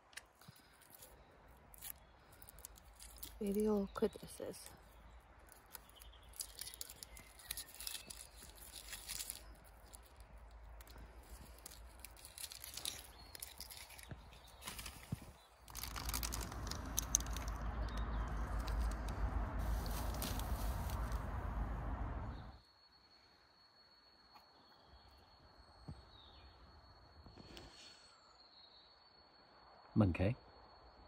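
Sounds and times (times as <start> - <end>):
clicks and crinkling from handling: 0.0 - 21.2
rushing noise with low rumble: 15.7 - 22.6.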